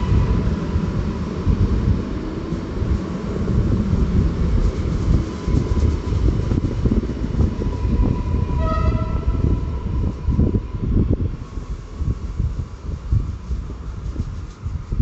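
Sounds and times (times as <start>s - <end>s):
train wheels rumbling on rails: 0.0s - 15.0s
train horn toot: 8.5s - 9.6s.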